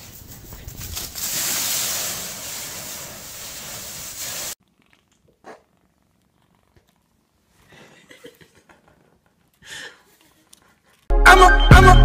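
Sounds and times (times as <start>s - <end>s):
dry leaves rustling and crunching: 0.0s - 4.2s.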